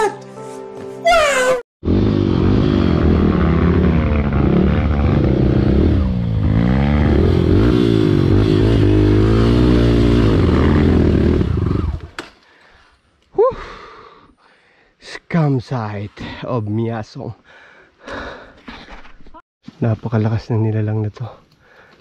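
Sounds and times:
dirt bike engine revving: 0:01.8 - 0:12.2.

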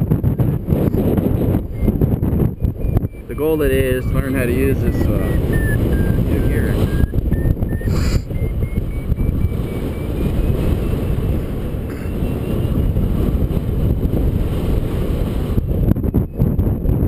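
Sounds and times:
wind rushing over microphone: 0:00.0 - 0:17.0
variometer beeping: 0:00.2 - 0:12.9.

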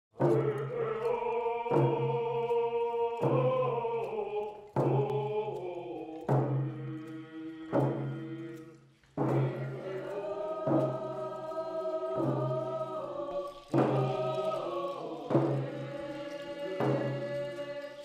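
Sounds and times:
sharp beat: 0:00.2 - 0:08.6, 0:09.2 - 0:13.0
chant-like singing: 0:00.2 - 0:18.0.

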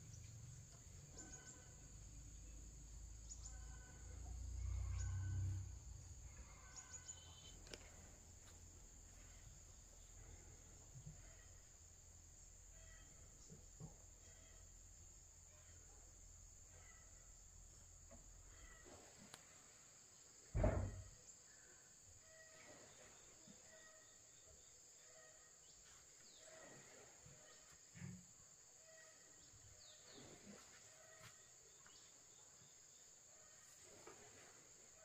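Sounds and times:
faint chirps: 0:00.0 - 0:20.0
insects droning: 0:00.0 - 0:35.0
dull thump: 0:20.5 - 0:21.1.

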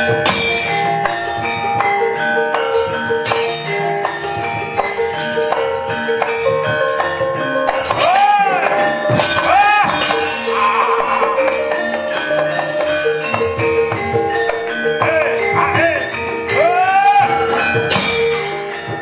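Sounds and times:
gamelan metallophones and gongs: 0:00.0 - 0:19.0
rising and falling cries: 0:07.9 - 0:12.4.

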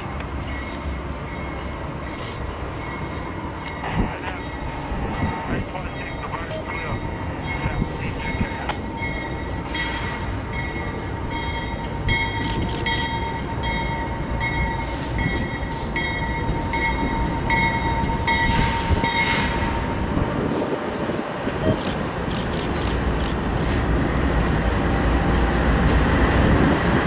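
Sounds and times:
locomotive bell ringing: 0:00.0 - 0:20.0
diesel locomotive rumbling: 0:00.0 - 0:27.0.

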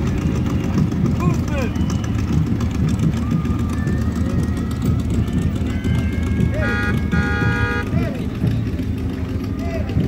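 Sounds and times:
crowd noise: 0:00.0 - 0:10.0
low rumble of vehicles: 0:00.0 - 0:10.0
vehicle horn honking: 0:05.6 - 0:08.1.

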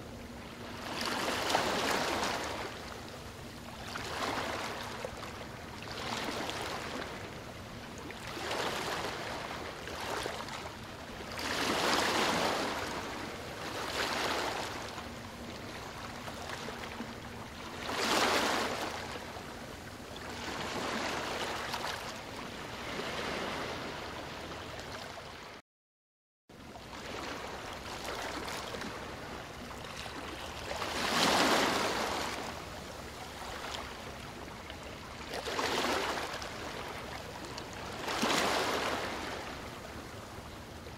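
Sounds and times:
waves sloshing against rock: 0:00.4 - 0:07.4, 0:08.0 - 0:19.4, 0:26.9 - 0:40.6.

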